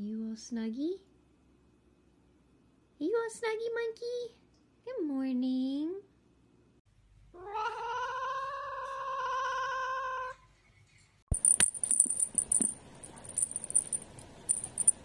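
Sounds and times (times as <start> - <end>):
cat meowing: 7.4 - 10.4
light high rattle: 11.3 - 15.0.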